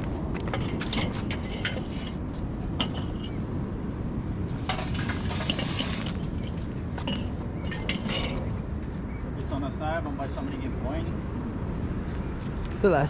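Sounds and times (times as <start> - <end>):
steady low rumble: 0.0 - 13.0
coals clattering into grill: 0.4 - 3.5, 4.5 - 8.7.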